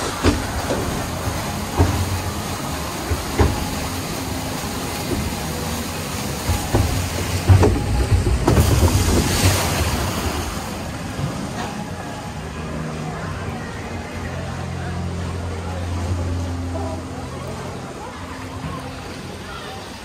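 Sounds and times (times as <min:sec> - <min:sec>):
boat knocking: 0:00.0 - 0:11.9
water rushing and churning: 0:00.0 - 0:20.0
water splashing over boat: 0:00.0 - 0:20.0.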